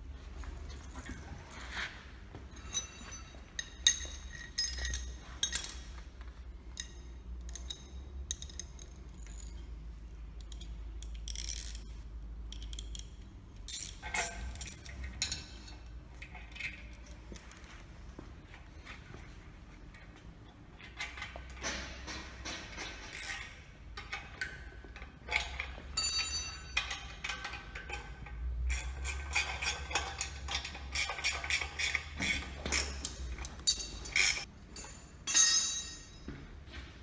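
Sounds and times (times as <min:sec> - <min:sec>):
metal chain clinking: 0:00.4 - 0:06.1, 0:25.2 - 0:36.3.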